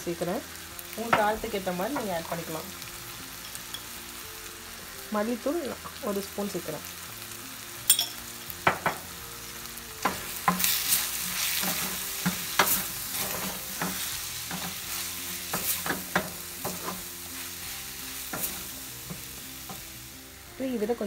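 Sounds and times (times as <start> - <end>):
oil sizzling in a pan: 0.0 - 21.0
spatula scraping a pan: 10.0 - 19.9.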